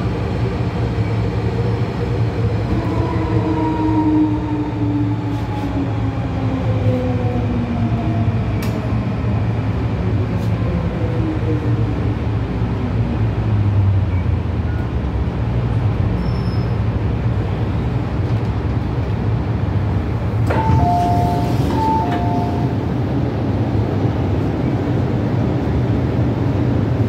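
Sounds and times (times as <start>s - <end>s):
train running rumble in tunnel: 0.0s - 27.0s
two-tone signal: 20.5s - 22.8s.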